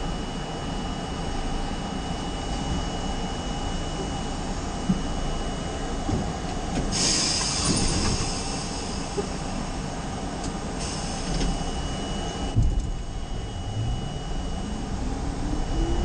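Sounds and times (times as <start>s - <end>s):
subway train wheels rumbling on rail: 0.0s - 16.0s
hissing rush of train: 6.7s - 11.9s.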